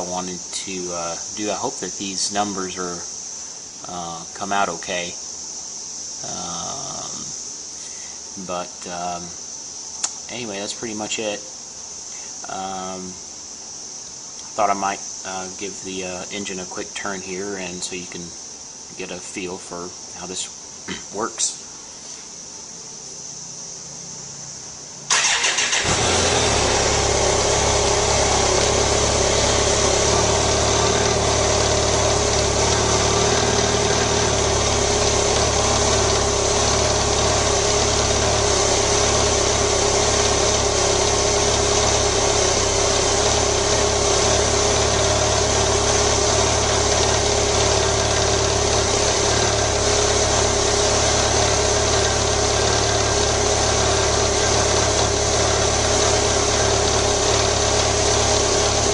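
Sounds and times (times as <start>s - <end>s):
motorcycle engine idling: 25.1s - 58.9s
motorcycle starter cranking: 25.1s - 58.9s.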